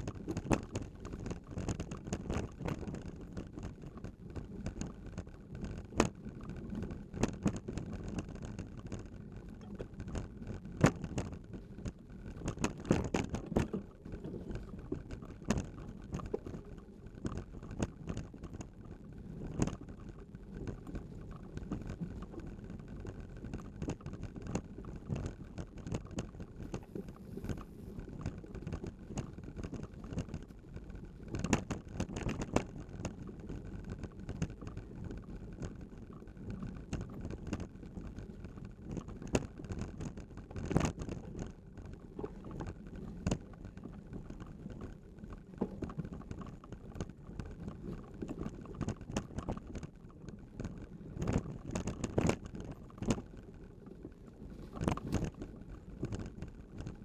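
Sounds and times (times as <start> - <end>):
bicycle rattling over bumps: 0.0 - 57.0
bicycle tyres rumbling on dirt: 0.0 - 57.0
wind on microphone: 54.1 - 57.0.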